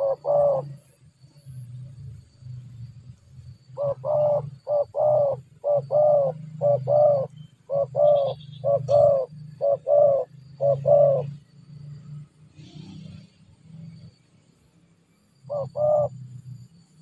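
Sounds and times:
dove cooing: 0.0s - 0.9s, 3.7s - 11.4s, 15.5s - 16.2s.

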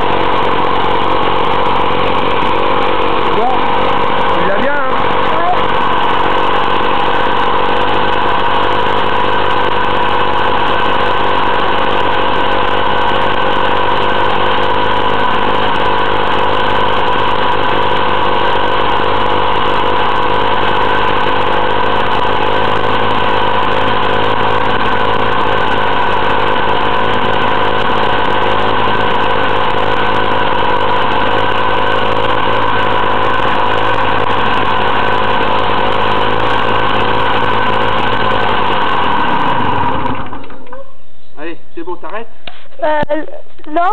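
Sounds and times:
two-stroke engine running: 0.0s - 40.8s, 42.8s - 43.9s.

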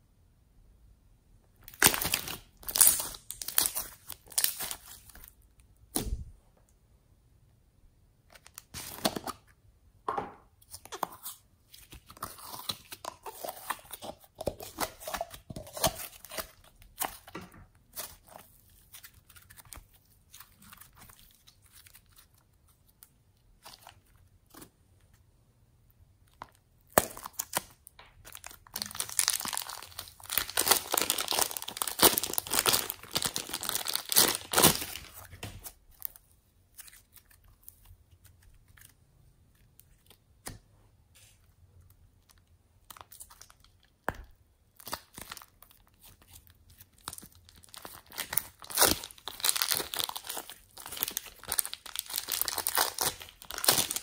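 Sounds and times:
slime crackling and popping: 1.6s - 4.9s, 26.8s - 35.2s, 42.8s - 54.0s
plastic wrap crinkling: 1.6s - 5.4s, 26.3s - 39.0s, 44.8s - 54.0s.

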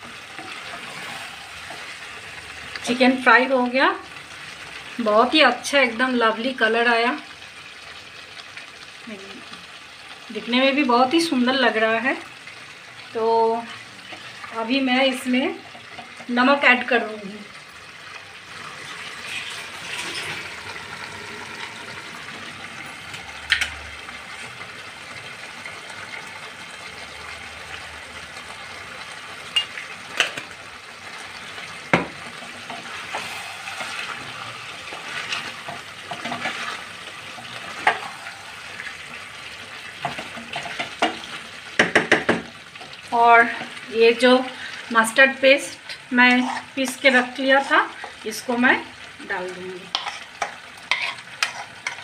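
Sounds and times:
chicken sizzling in a pan: 0.0s - 52.0s
spatula tapping pan: 41.8s - 42.5s.

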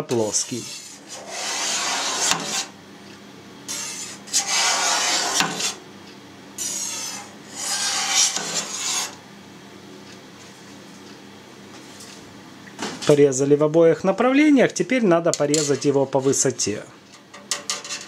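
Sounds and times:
knife scraping steel pan: 0.1s - 2.7s, 3.7s - 5.8s, 6.6s - 9.2s.

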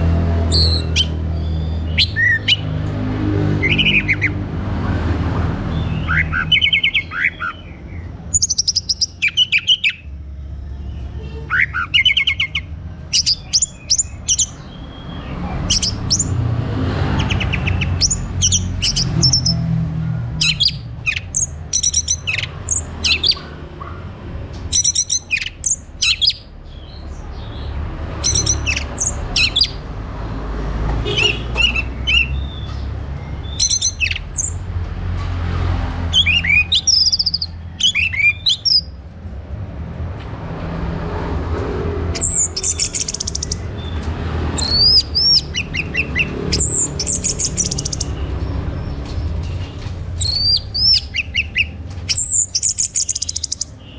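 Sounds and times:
thrush chirps and trills: 42.1s - 53.9s.

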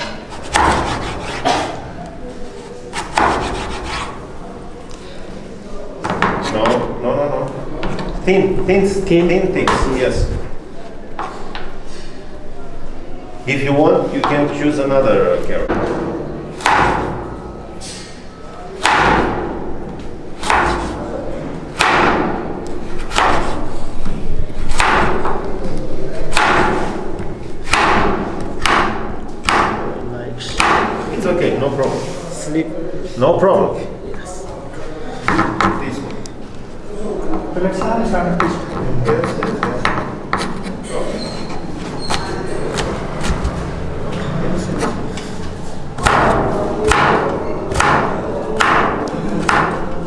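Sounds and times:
knife chopping on wooden board: 0.4s - 1.8s, 3.0s - 4.1s.

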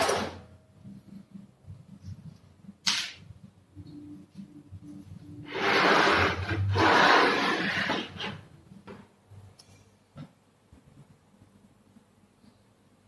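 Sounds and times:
harsh rasping scrape: 5.5s - 8.5s.

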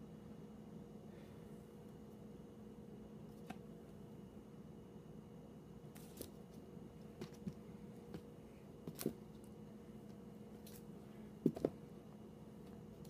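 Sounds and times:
faint steady hum: 0.0s - 13.0s
record sleeves tapping and rustling: 6.0s - 9.3s, 11.4s - 11.8s.

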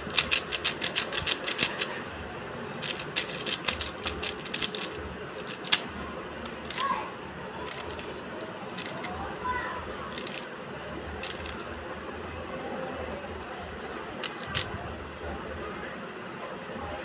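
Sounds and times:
puzzle cube clicking as turned: 0.0s - 1.9s, 2.8s - 6.8s, 7.7s - 8.0s, 8.8s - 9.1s, 10.1s - 10.5s, 11.2s - 11.7s, 14.2s - 14.7s.

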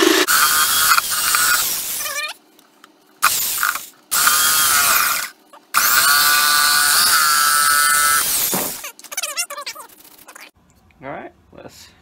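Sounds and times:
reciprocating saw cutting wood: 0.0s - 1.8s.

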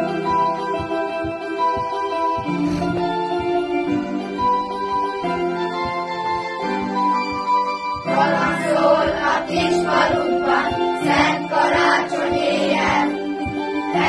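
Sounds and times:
electronic keyboard chords: 0.0s - 14.0s
children's choir singing: 8.0s - 14.0s.

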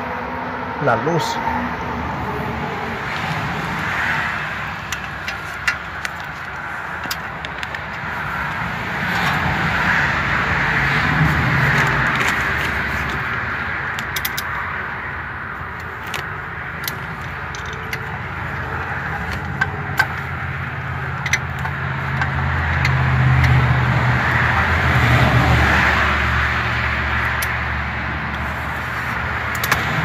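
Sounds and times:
engine running: 0.0s - 30.0s
ratchet clicks: 13.9s - 14.6s, 15.7s - 20.4s, 21.0s - 23.8s, 28.3s - 30.0s.

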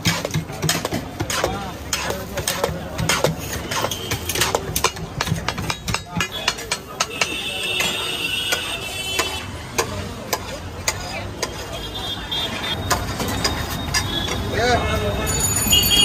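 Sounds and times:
metal spatulas scraping griddle: 0.0s - 11.8s.

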